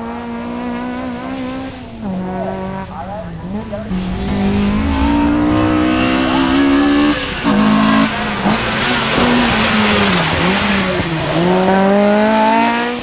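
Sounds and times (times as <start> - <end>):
car engine revving: 0.0 - 13.0
tyres squealing: 2.4 - 11.5.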